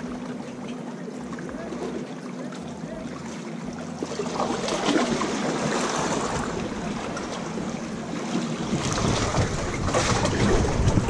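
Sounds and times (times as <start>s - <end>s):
waves splashing on rocks: 3.4s - 11.0s
wind on microphone: 4.3s - 11.0s.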